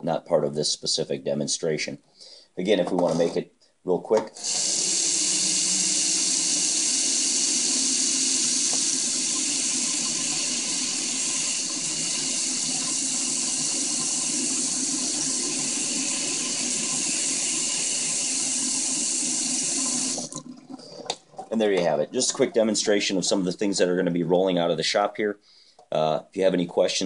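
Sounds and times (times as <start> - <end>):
tap water splashing in sink: 7.7 - 22.6.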